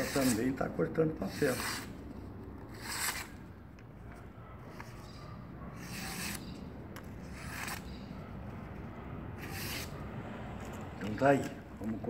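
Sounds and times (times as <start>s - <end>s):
knife slicing paper: 0.0s - 0.6s, 5.8s - 6.5s, 7.3s - 7.9s.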